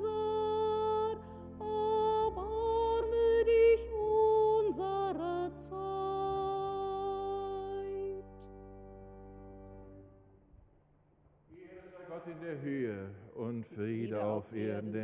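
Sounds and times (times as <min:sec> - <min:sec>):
woman singing chant: 0:00.0 - 0:08.5.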